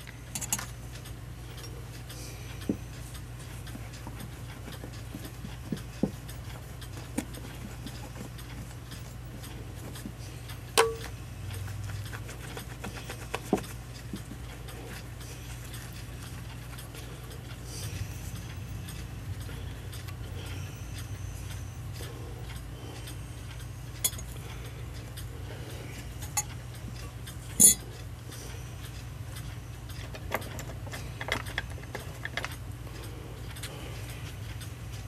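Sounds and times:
small metal parts clicking: 0.0 - 0.7, 27.5 - 27.8
steady low hum: 0.0 - 35.0.

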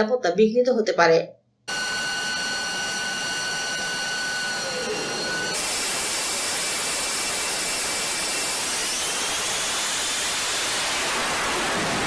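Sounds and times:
faint whine: 1.7 - 5.6
jet engine hissing rush: 1.7 - 12.0.

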